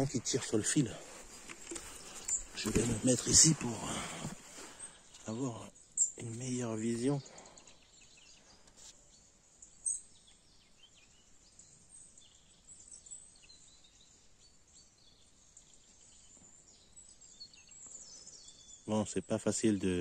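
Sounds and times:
faint bird chirps: 0.0 - 20.0.

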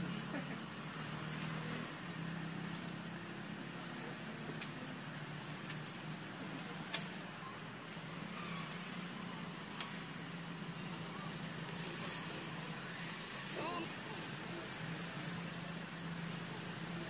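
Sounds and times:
steady hiss: 0.0 - 17.0
sharp clicks: 9.8 - 10.0.

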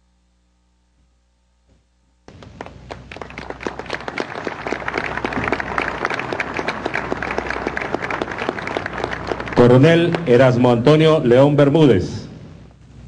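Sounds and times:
audience applauding: 2.3 - 11.1.

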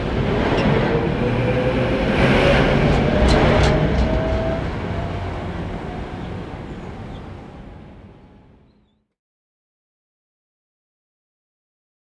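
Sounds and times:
tram rumble: 0.0 - 9.0.

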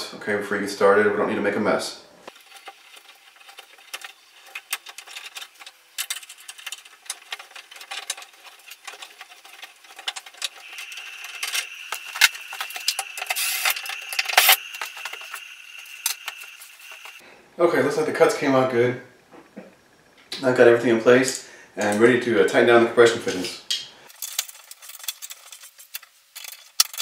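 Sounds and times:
high-pitched squeal: 10.5 - 17.2.

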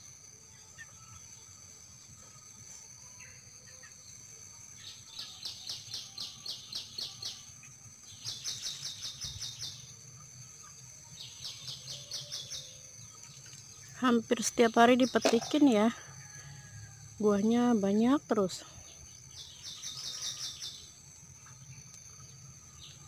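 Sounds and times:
bird chirping rapidly: 19.3 - 21.0.

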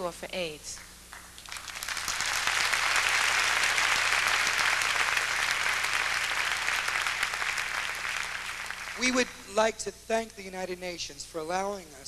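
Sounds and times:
audience applauding: 1.1 - 9.6.

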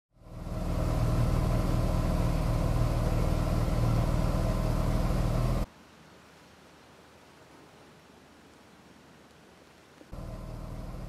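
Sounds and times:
outboard motor running: 0.1 - 5.6, 10.2 - 11.0.

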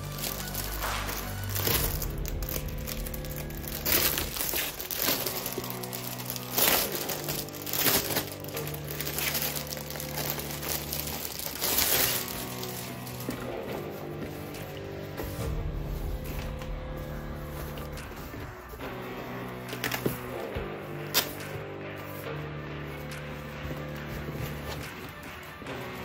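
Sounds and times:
plastic packaging crinkling: 0.0 - 15.4
background music: 0.0 - 26.0.

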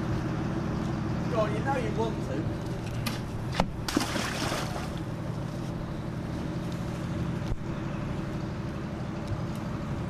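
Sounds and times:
rustling or splashing: 3.0 - 5.7.

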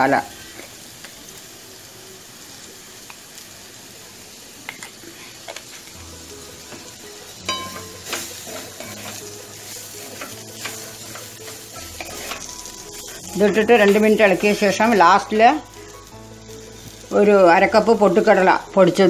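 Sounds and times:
vegetables sizzling in a pan: 0.0 - 19.0
spatula scraping and knocking pan: 6.6 - 15.0.

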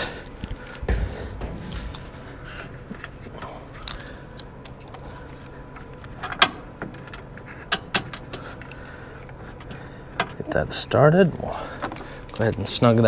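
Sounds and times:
metal bolt and tool clinking: 11.8 - 12.6.

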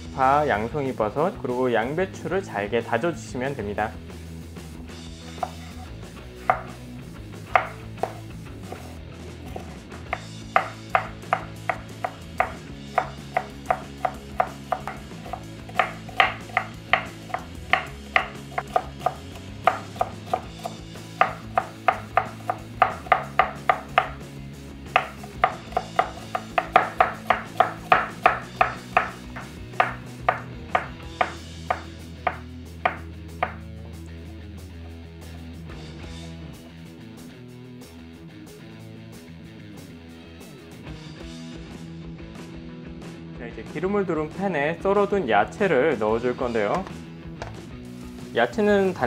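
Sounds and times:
knife chopping on wooden board: 5.4 - 5.6, 6.4 - 6.8, 7.5 - 24.2, 24.9 - 33.7.

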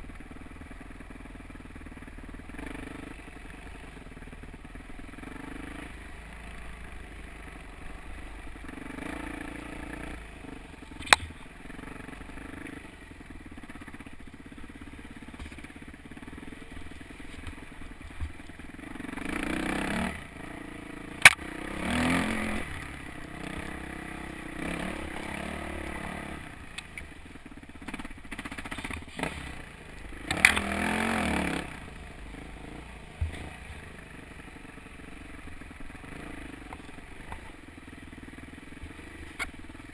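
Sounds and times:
dirt bike engine revving: 0.7 - 39.9.

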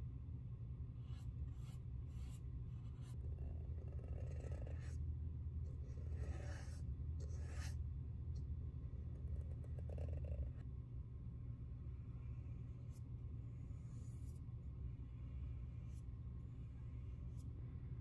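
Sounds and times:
scratchy brush strokes: 1.0 - 5.0, 5.7 - 7.8, 12.3 - 17.6.

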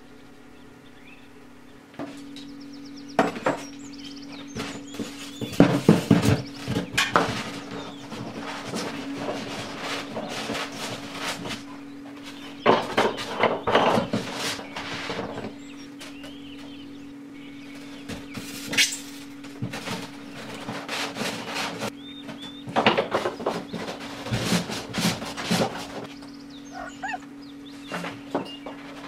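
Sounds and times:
steady low hum: 0.0 - 29.0
foam rubbing and squeaking: 4.5 - 15.9, 17.8 - 22.0, 26.7 - 27.3.

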